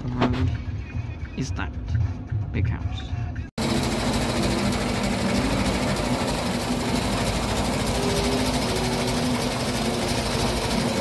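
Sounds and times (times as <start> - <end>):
engine running steadily: 3.6 - 11.0
fast mechanical ticking: 3.6 - 11.0.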